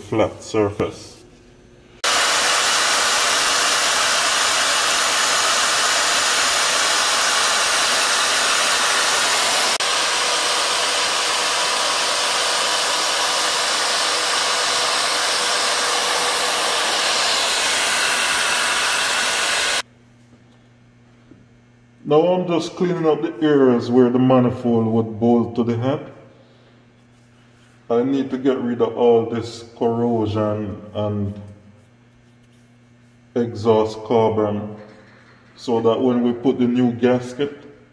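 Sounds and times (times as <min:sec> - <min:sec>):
die grinder running: 0:02.0 - 0:19.8.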